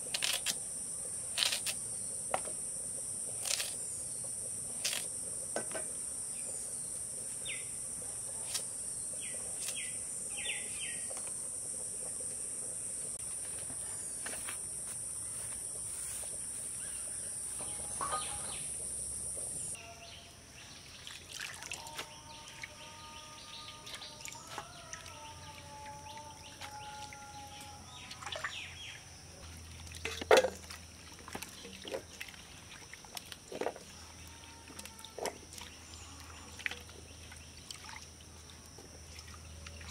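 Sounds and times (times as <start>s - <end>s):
crickets trilling: 0.0s - 39.9s
birds calling: 15.2s - 19.9s.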